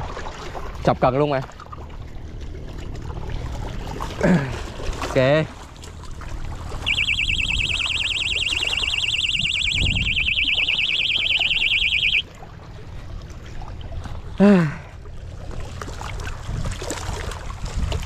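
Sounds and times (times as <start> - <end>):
warbling electronic bite alarm: 6.7 - 12.2.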